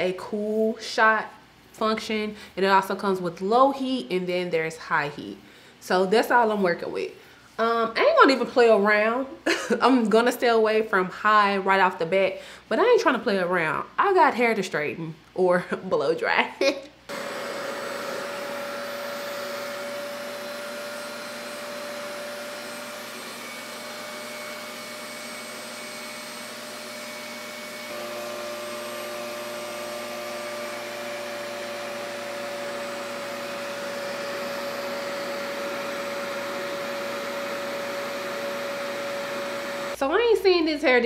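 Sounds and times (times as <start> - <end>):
blow dryer air rushing: 17.1 - 40.0
motor whine: 17.1 - 40.0.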